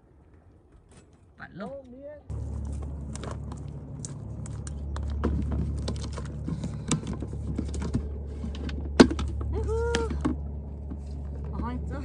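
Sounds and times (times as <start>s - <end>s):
bucket handle and lid clattering: 5.1s - 10.5s.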